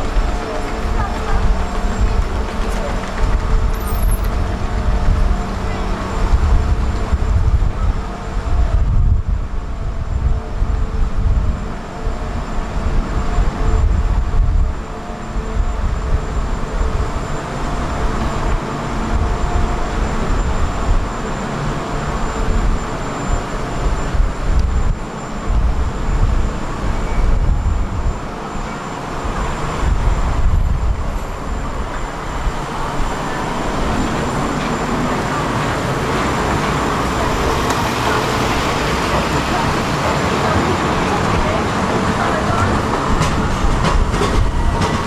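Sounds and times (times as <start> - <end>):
trams passing: 0.0 - 45.0
cars passing: 31.3 - 45.0.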